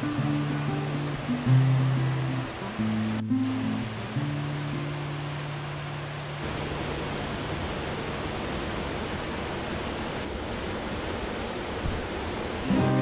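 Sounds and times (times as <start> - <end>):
rushing water: 0.0 - 13.0.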